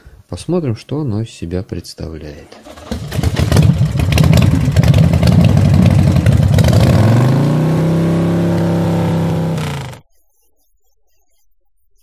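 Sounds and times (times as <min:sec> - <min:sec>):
vehicle engine revving: 0:02.6 - 0:10.0.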